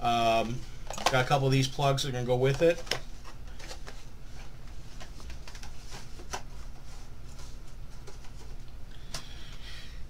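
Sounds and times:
steady low hum: 0.0s - 10.0s
plastic clicks and rustles: 0.8s - 1.3s.

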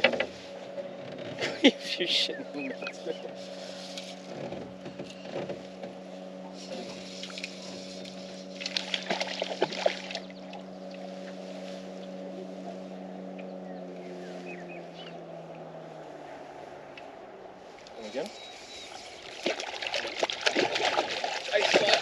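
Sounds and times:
boat motor humming: 0.0s - 22.0s
water splashing: 6.6s - 11.1s, 19.0s - 22.0s.

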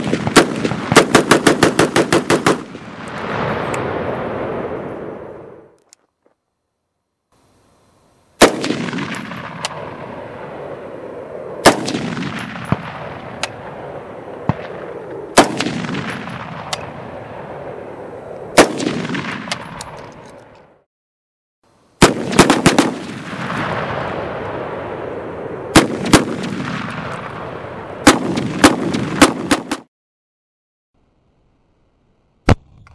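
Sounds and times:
gunshots: 0.0s - 4.9s, 8.4s - 17.8s, 18.5s - 20.3s, 22.0s - 29.9s.

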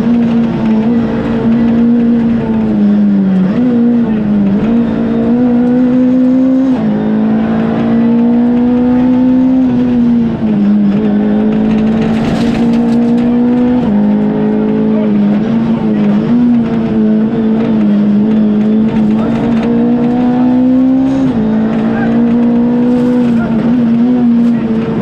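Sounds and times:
car engine revving hard: 0.0s - 25.0s.

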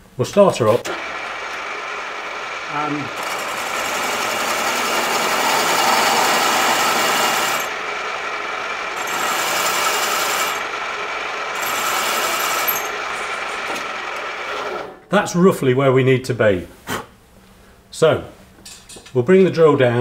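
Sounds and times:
pillar drill motor whine: 0.9s - 15.0s.

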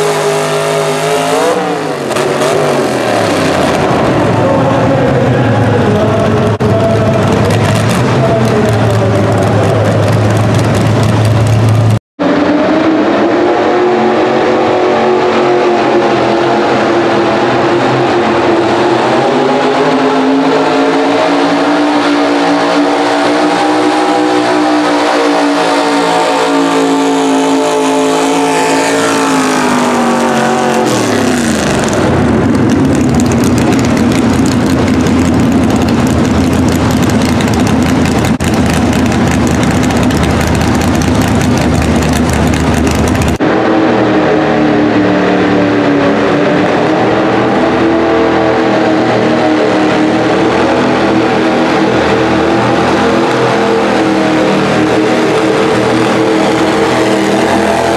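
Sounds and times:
truck engine at full throttle: 0.0s - 57.9s.

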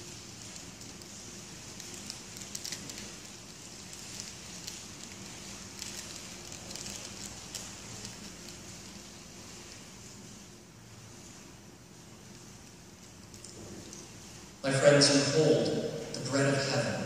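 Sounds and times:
crackling and rustling clicks: 0.0s - 10.5s, 12.0s - 14.6s
background hiss: 0.0s - 17.0s.

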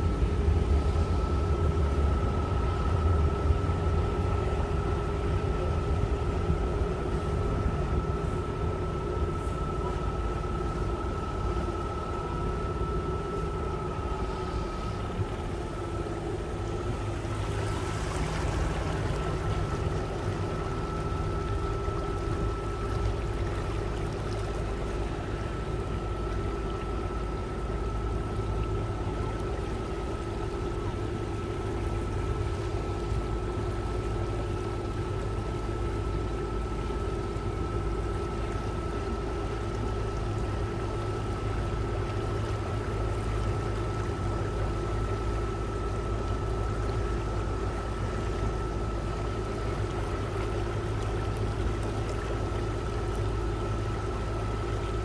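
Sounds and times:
boat engine drone: 0.0s - 55.0s
water rushing past hull: 0.0s - 55.0s.

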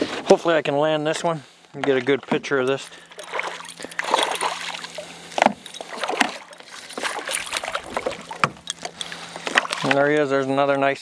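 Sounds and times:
fish splashing at surface: 2.9s - 10.0s.

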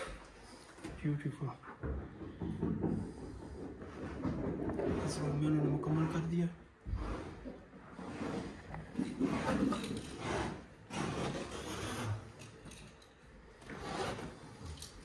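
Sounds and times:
carpet rubbing and scraping: 3.2s - 12.4s, 13.6s - 14.6s.

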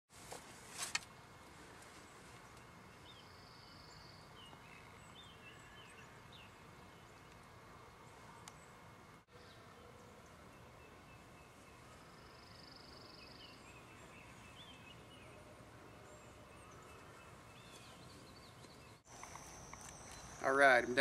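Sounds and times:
birds chirping: 1.8s - 21.0s.

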